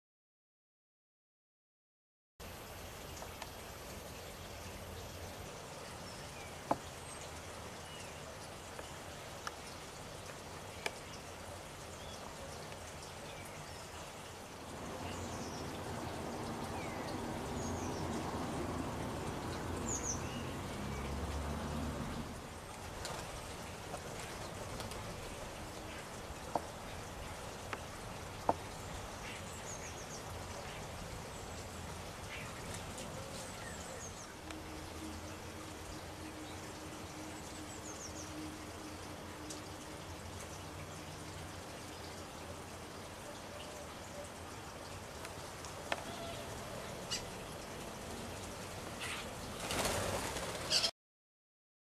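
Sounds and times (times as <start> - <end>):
small songbirds calling: 3.1 - 50.9
small birds chirping: 3.3 - 21.5, 45.2 - 50.9.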